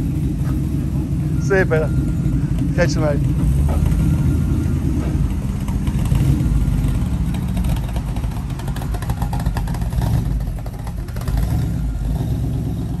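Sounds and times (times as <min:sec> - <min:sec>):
car engine deep rumble: 0:00.0 - 0:13.0.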